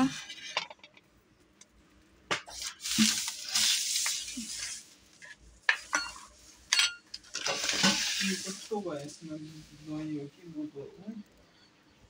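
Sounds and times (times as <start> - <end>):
dishes scraping and rustling: 0.0 - 1.1, 2.3 - 9.1
plate clinking and knocking: 5.7 - 8.1.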